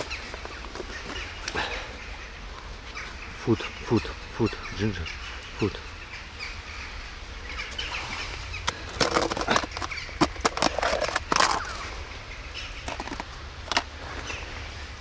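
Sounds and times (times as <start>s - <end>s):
plastic rustling: 8.7s - 11.9s.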